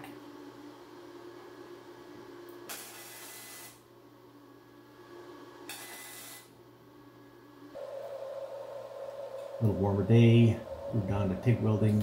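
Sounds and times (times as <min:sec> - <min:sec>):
welding arc hissing: 0:02.7 - 0:03.8, 0:05.7 - 0:06.5
low steady hum: 0:03.8 - 0:12.0.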